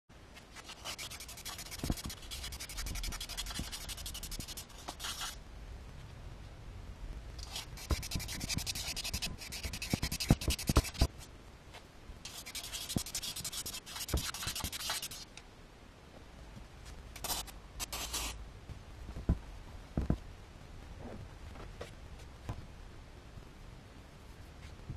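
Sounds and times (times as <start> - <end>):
abrasive paper rubbing metal: 0.6 - 5.4, 7.4 - 11.1, 12.3 - 15.3, 17.2 - 18.4.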